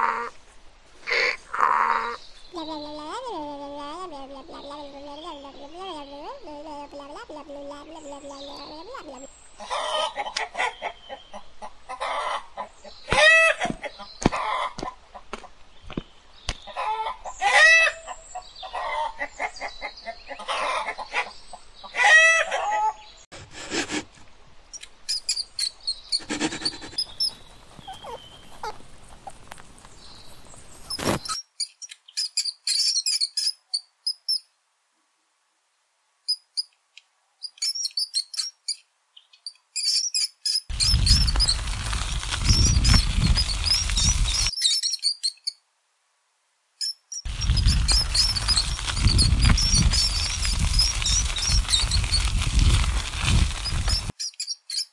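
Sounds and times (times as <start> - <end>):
chickens clucking and squawking: 1.1 - 15.5, 16.7 - 23.1, 26.1 - 29.5
rat squeaking: 25.1 - 28.9, 30.8 - 34.4, 37.4 - 38.8, 39.8 - 45.6, 46.8 - 54.9.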